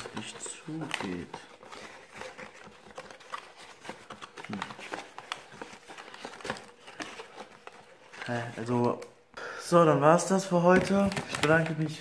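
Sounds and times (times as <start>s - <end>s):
cardboard box clicks and rustles: 0.0s - 8.8s.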